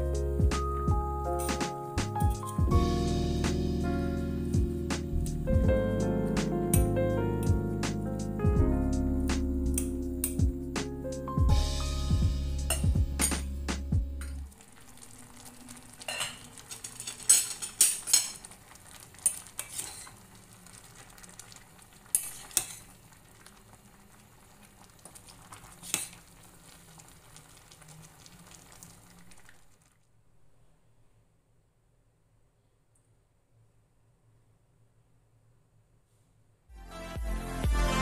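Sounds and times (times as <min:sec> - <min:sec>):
soup bubbling in pot: 0:14.4 - 0:30.0
metal spoon clinking against pot: 0:16.1 - 0:18.4.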